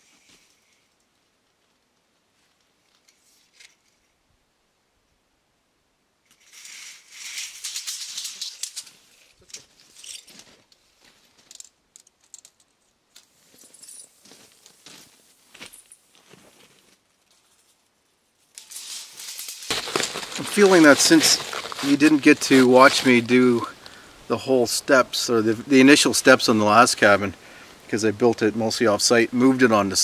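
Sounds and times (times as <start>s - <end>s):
footsteps crunching on gravel: 14.2s - 16.9s, 19.7s - 24.0s.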